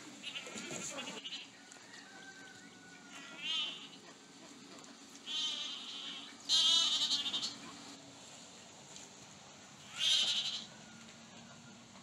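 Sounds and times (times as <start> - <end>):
goats bleating: 0.2 - 1.6, 3.1 - 4.1, 5.2 - 7.7, 9.8 - 10.7.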